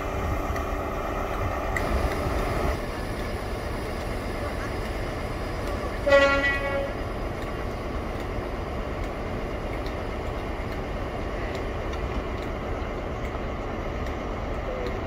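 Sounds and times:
diesel engine rumble: 0:00.0 - 0:15.0
train horn toot: 0:06.0 - 0:07.0.

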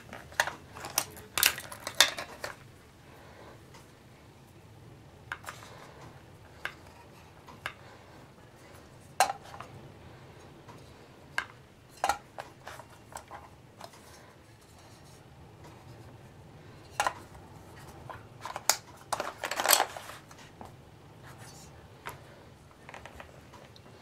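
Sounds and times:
box contents rattling: 0:00.0 - 0:02.6, 0:18.4 - 0:20.3.

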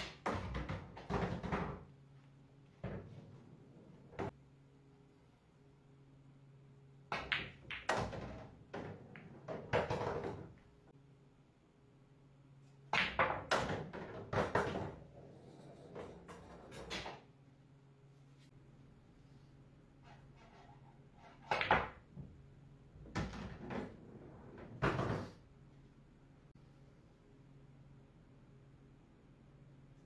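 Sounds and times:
pool balls clacking: 0:00.0 - 0:01.9, 0:07.1 - 0:10.6, 0:13.0 - 0:17.2, 0:21.3 - 0:22.1, 0:23.0 - 0:25.4.

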